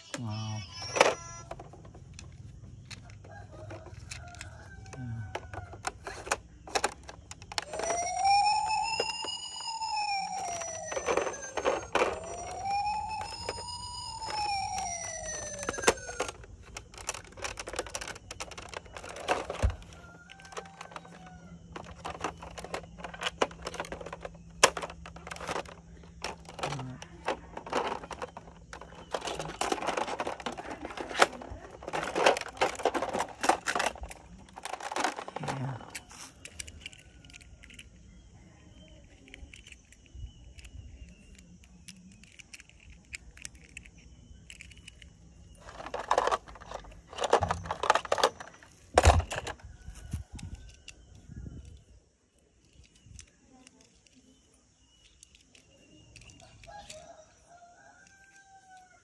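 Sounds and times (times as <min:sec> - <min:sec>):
plastic toy clicking and rattling: 0:00.6 - 0:38.1, 0:38.7 - 0:51.9, 0:52.6 - 0:57.1, 0:58.0 - 0:59.0.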